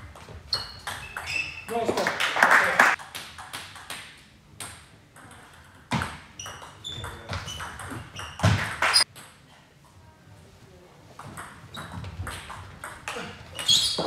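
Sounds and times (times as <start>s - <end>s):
short high squeaks: 0.5s - 1.7s, 13.6s - 14.0s.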